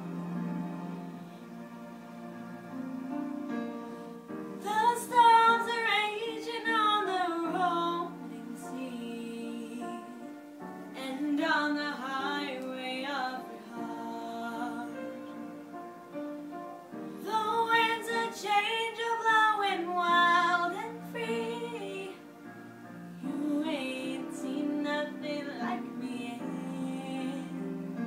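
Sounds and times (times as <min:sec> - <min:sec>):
instrumental backing music: 0:00.0 - 0:28.0
girl singing: 0:04.6 - 0:10.4, 0:11.0 - 0:15.5, 0:17.2 - 0:22.4, 0:23.2 - 0:27.6.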